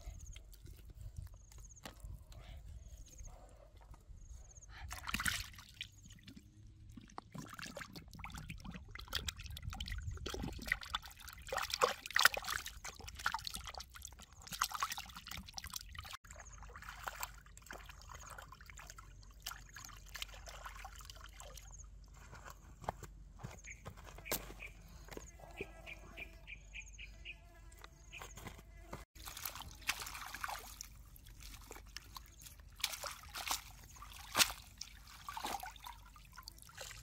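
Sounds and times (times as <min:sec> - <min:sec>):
water sloshing and splashing: 0:04.8 - 0:22.4, 0:29.0 - 0:37.0
water dripping: 0:29.2 - 0:37.0.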